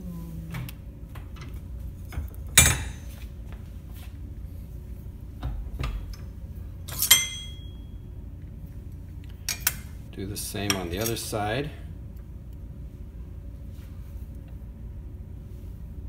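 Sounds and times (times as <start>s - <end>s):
metal clanks: 6.9s - 7.8s.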